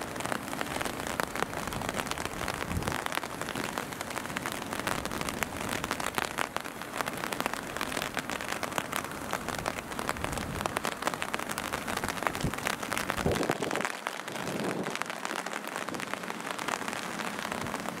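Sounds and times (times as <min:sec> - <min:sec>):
steady rain: 0:00.0 - 0:18.0.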